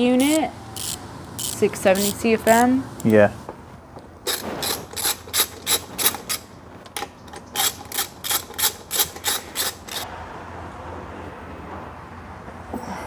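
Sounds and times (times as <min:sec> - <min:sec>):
ratchet wrench clicking: 0:00.2 - 0:02.2, 0:04.3 - 0:10.1.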